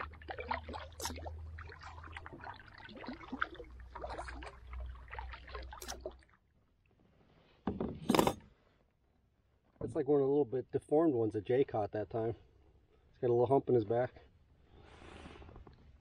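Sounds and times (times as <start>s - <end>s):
paddle splashing and dripping: 0.0s - 6.5s
water trickling along hull: 0.0s - 7.2s.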